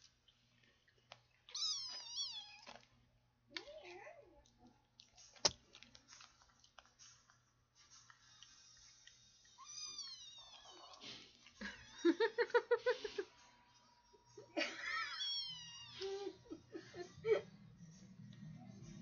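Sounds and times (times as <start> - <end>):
kitten meowing: 1.5 - 2.7, 9.6 - 10.9, 15.2 - 16.0.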